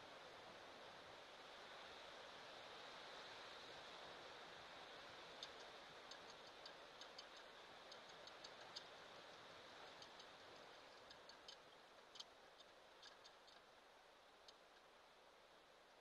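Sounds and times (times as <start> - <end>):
faint steady hiss: 0.0 - 16.0
sharp high-pitched ticks: 5.4 - 13.7.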